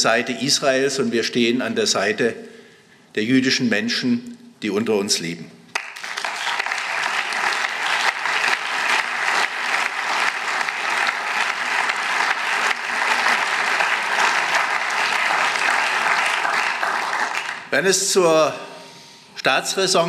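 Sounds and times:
crowd applauding: 0:05.7 - 0:17.7.

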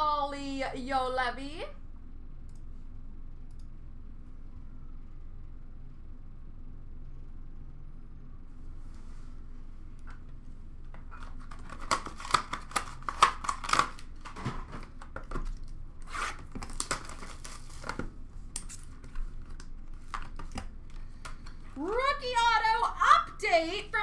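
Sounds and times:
plastic wrap crinkling: 0:11.1 - 0:21.0
wrapping tearing: 0:11.1 - 0:21.0.

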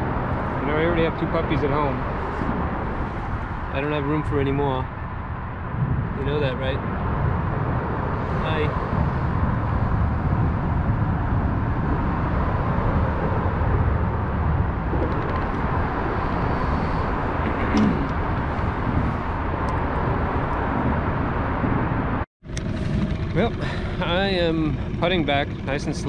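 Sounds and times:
small outboard motor running: 0:22.5 - 0:26.0.

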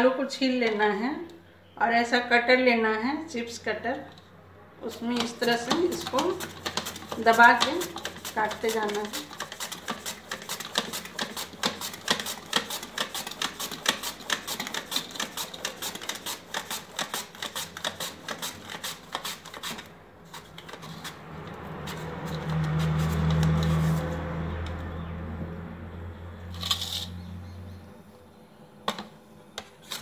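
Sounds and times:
potato slicing on mandoline: 0:04.8 - 0:24.2, 0:29.6 - 0:30.0.

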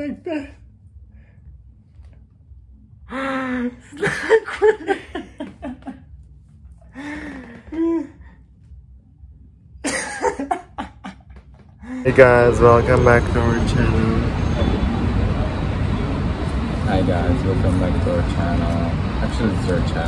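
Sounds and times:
person laughing: 0:03.8 - 0:06.1, 0:09.8 - 0:12.2.

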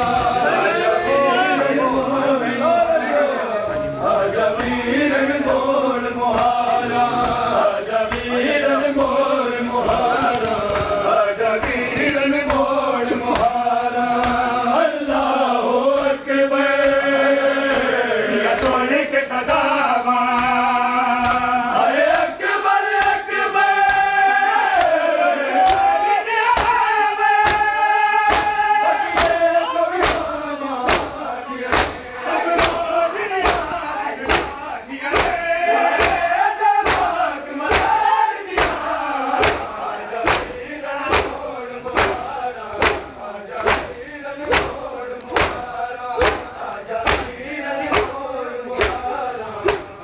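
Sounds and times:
men chanting a lament: 0:00.0 - 0:50.0
hands slapping bare chests: 0:09.0 - 0:11.0, 0:11.6 - 0:13.6, 0:14.2 - 0:14.5, 0:18.5 - 0:18.8, 0:20.3 - 0:20.6, 0:21.2 - 0:21.5, 0:23.8 - 0:25.0, 0:25.6 - 0:25.9, 0:26.5 - 0:26.8, 0:27.4 - 0:27.7, 0:28.3 - 0:28.6, 0:29.2 - 0:29.4, 0:30.0 - 0:48.2, 0:48.8 - 0:50.0.

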